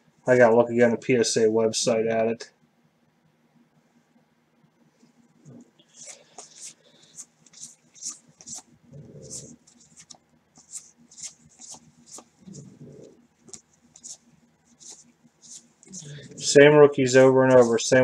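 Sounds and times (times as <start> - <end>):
papery swish of cards sliding: 6.0 - 12.7, 13.5 - 16.4.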